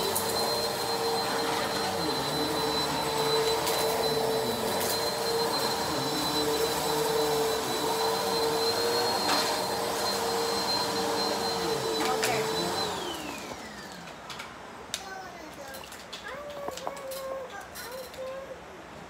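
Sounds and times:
vacuum cleaner running: 0:00.0 - 0:14.4.

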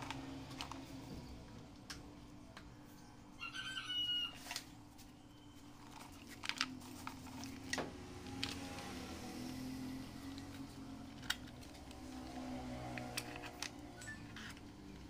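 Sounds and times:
clicks and knocks of handled objects: 0:05.8 - 0:08.9, 0:10.3 - 0:15.0.

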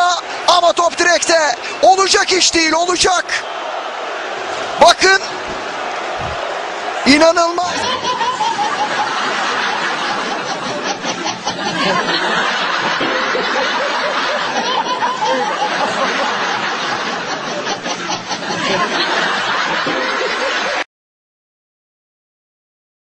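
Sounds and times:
crowd noise: 0:00.0 - 0:20.8
laughter: 0:07.7 - 0:20.8.

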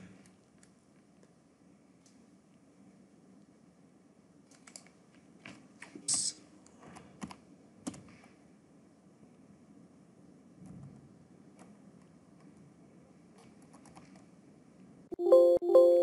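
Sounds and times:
computer keyboard keystrokes: 0:04.5 - 0:05.0, 0:13.4 - 0:14.3.

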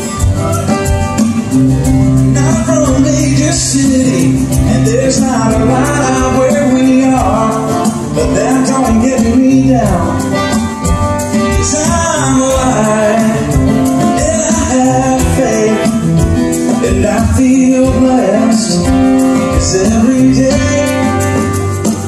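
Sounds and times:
strummed acoustic guitars: 0:00.0 - 0:22.0
man singing: 0:02.2 - 0:22.0.

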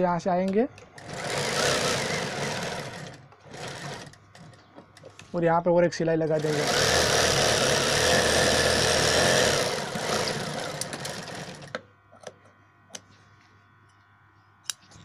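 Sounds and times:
sewing machine running: 0:01.0 - 0:04.5, 0:06.2 - 0:11.8.

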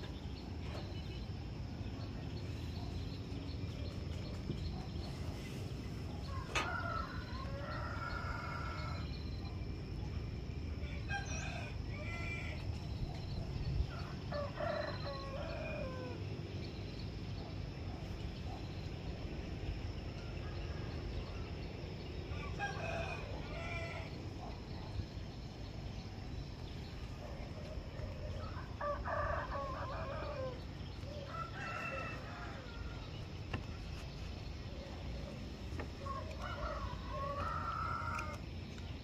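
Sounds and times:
rooster crowing: 0:31.2 - 0:33.2, 0:36.1 - 0:38.4.

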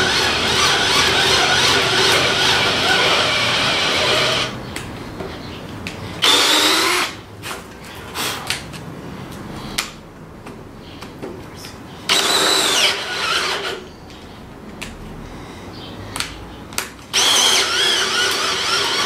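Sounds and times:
cordless drill boring into wood: 0:00.0 - 0:04.6, 0:06.2 - 0:07.2, 0:12.1 - 0:13.8, 0:17.1 - 0:19.0.

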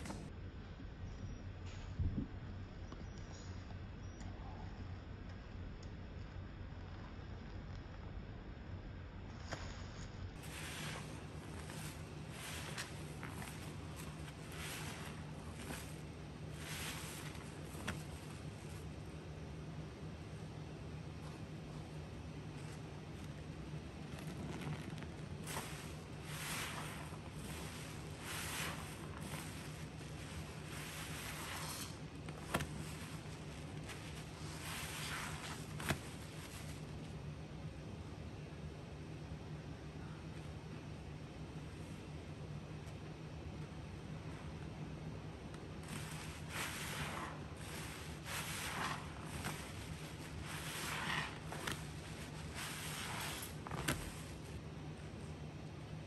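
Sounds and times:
wet sponge squishing: 0:09.4 - 0:19.0, 0:22.6 - 0:37.0, 0:45.7 - 0:54.6.

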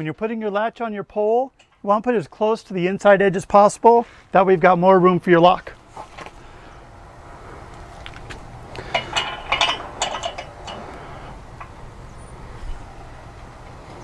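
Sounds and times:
metal gate latch clinking: 0:08.8 - 0:11.0.

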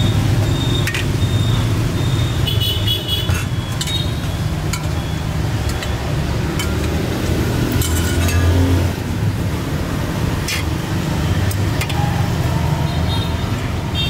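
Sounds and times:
traffic engine rumble: 0:00.0 - 0:14.0.

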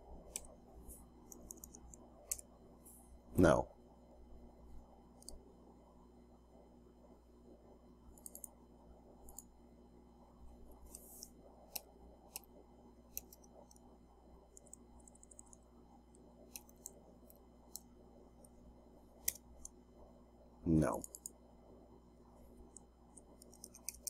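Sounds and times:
low steady hum: 0:00.0 - 0:24.0
computer mouse clicks: 0:00.3 - 0:00.6, 0:01.2 - 0:02.5, 0:05.2 - 0:05.4, 0:08.1 - 0:08.6, 0:09.2 - 0:09.5, 0:10.8 - 0:12.5, 0:13.1 - 0:13.9, 0:14.5 - 0:18.6, 0:19.2 - 0:19.8, 0:21.0 - 0:21.4, 0:22.7 - 0:24.0.

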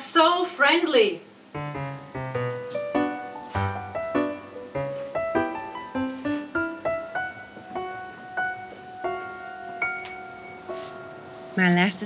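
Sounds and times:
piano music: 0:01.5 - 0:12.0.

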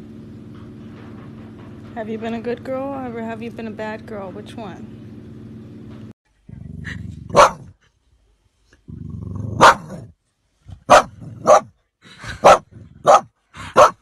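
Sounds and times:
dog barking: 0:07.3 - 0:07.7, 0:09.6 - 0:10.0, 0:10.9 - 0:11.7, 0:12.4 - 0:14.0
dog growling: 0:08.9 - 0:10.1.

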